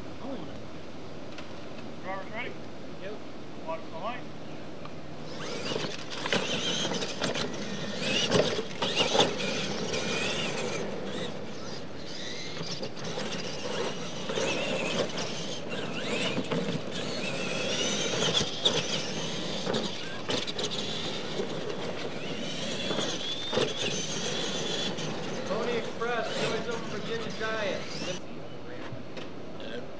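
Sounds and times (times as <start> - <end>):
electric motors whining: 5.2 - 29.0.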